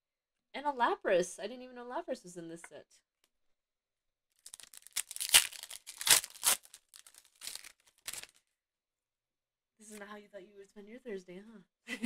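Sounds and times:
foil wrapper tearing and crinkling: 4.4 - 8.4.

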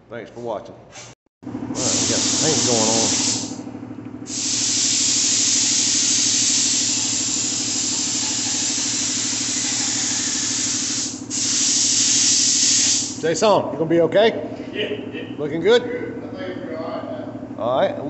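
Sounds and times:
steady low hum: 1.5 - 18.0
spray gun hissing: 1.8 - 3.6, 4.3 - 13.2.

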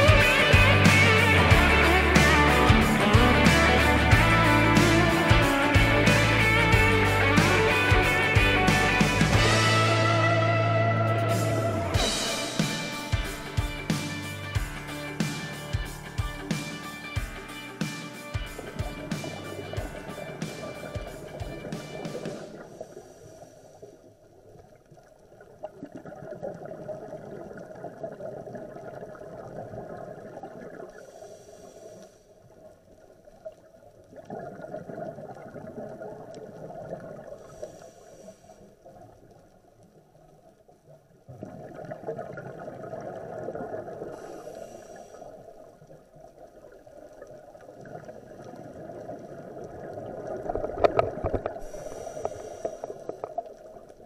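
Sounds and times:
short hiss: 20.3 - 24.0, 31.0 - 32.3, 37.4 - 38.7, 44.2 - 45.4, 51.5 - 53.4
regulator bubbling exhalations: 47.8 - 53.9.

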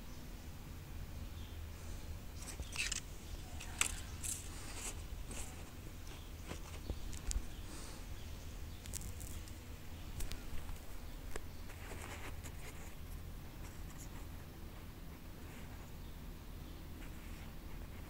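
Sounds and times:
paper crinkling and rustling: 2.4 - 7.4.

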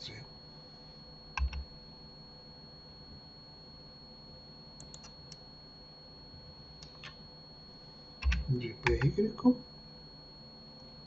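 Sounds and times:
computer keyboard clicks: 1.4 - 1.6, 4.8 - 5.4, 6.8 - 7.2, 8.2 - 9.2.

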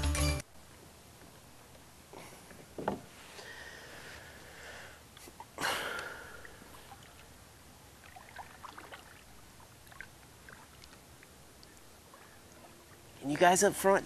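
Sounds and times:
water lapping and trickling: 3.2 - 14.0
small water drips: 5.1 - 13.2.

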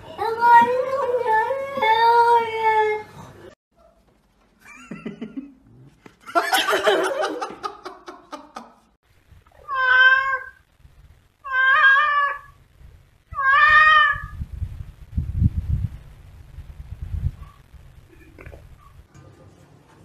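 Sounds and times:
cat meowing: 9.6 - 10.6, 11.4 - 12.6, 13.3 - 14.4.

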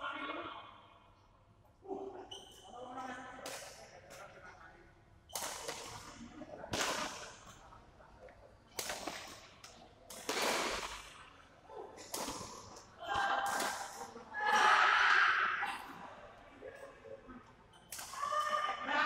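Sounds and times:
rackets striking shuttlecock: 8.7 - 11.2, 12.0 - 14.1.

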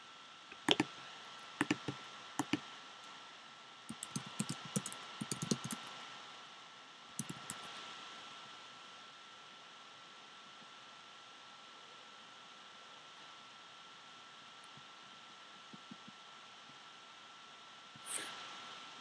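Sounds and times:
faint steady hiss: 0.0 - 19.0
computer keyboard typing: 0.5 - 1.0, 1.6 - 2.6, 3.9 - 5.9, 7.2 - 7.7.

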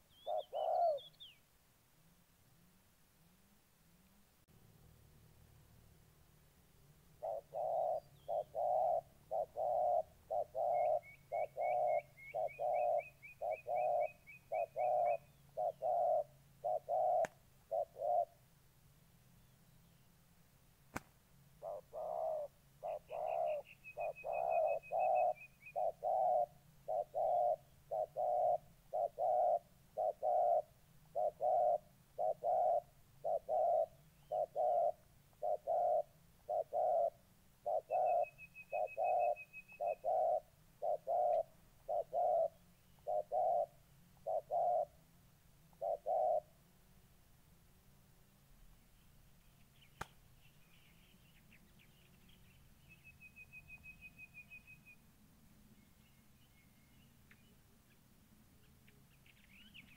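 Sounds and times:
doves cooing: 0.0 - 1.2, 7.2 - 18.4, 21.6 - 45.0, 45.7 - 46.6.

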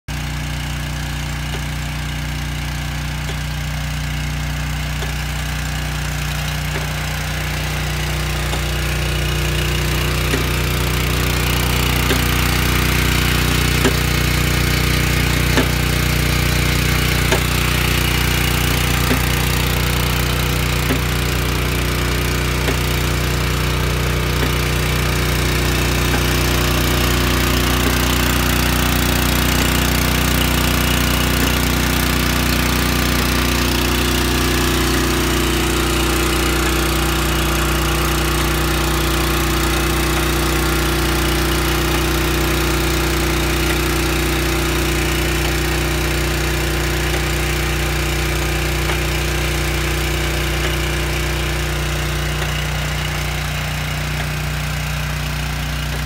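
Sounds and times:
small petrol engine running: 0.1 - 56.0
sharp tick: 20.9 - 21.3.

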